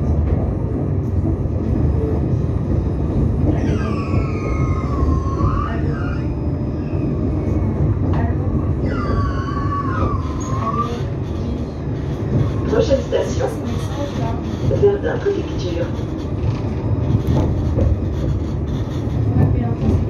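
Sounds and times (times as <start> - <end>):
tram rumbling on rails: 0.0 - 20.0.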